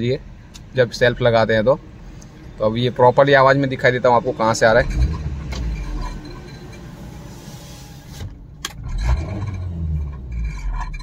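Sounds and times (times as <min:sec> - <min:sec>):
car engine at raised revs: 0:02.8 - 0:11.0.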